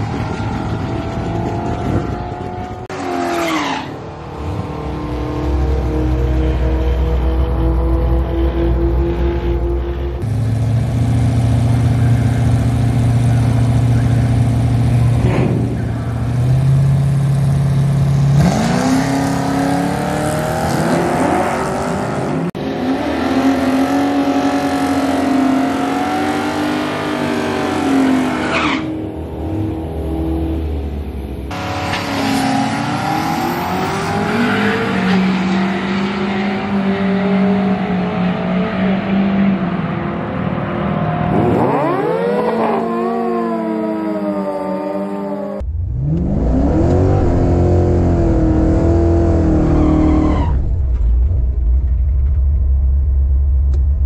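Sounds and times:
drag car engine revving: 0:41.1 - 0:53.8.

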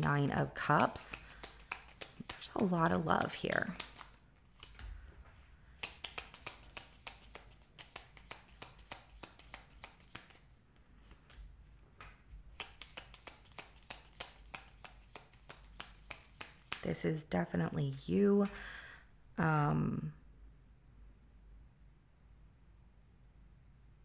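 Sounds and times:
cards being shuffled: 0:00.4 - 0:05.0, 0:05.7 - 0:11.6, 0:12.3 - 0:17.1.

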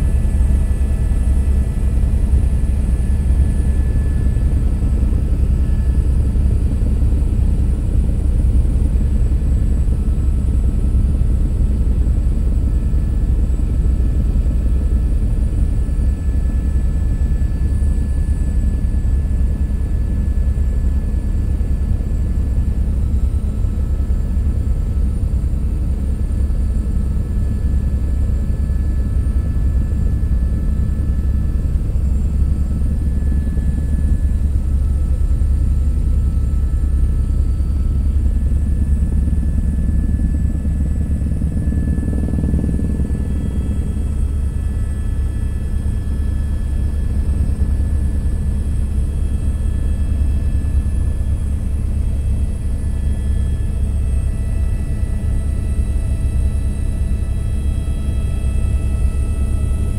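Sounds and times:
helicopter rotor and engine drone: 0:00.0 - 0:59.9
faint high whine: 0:27.4 - 0:59.9.

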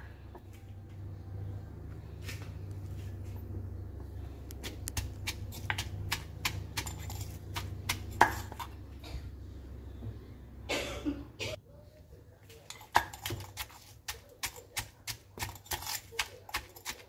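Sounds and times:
pestle pounding in mortar: 0:04.6 - 0:08.7, 0:12.8 - 0:17.0
metal spoon scraping: 0:04.6 - 0:08.8, 0:12.6 - 0:17.0.

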